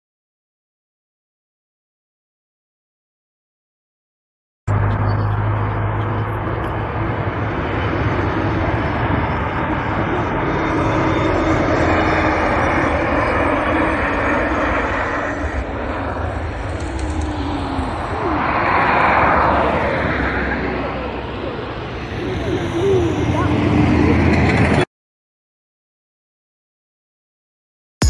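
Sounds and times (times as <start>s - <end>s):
jet engines rushing: 4.7s - 24.9s.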